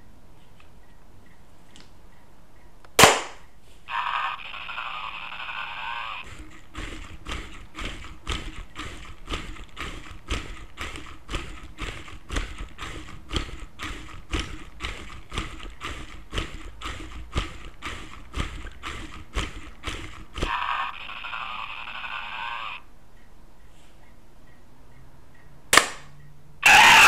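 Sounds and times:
recorded toy roar: 0:03.9 - 0:22.9, 0:26.6 - 0:27.0
toy geared motor whirring: 0:03.9 - 0:22.9, 0:26.6 - 0:27.0
wooden feet clacking on floor: 0:06.2 - 0:20.6.

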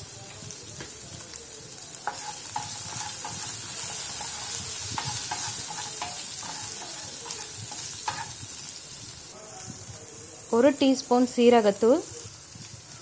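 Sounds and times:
vegetables sizzling in oil: 0:00.0 - 0:13.0
wooden spatula scraping pan: 0:02.1 - 0:08.4.

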